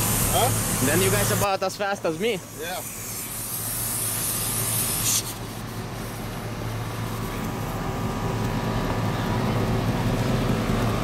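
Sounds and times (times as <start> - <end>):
air hissing from tyre valve: 0.0 - 1.5, 2.1 - 6.4
engines idling: 0.0 - 11.0.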